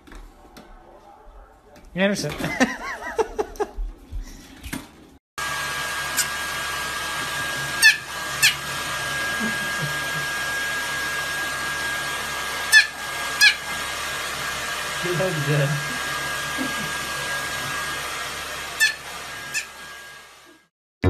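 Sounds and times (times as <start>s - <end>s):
hair dryer blowing: 5.4s - 20.7s.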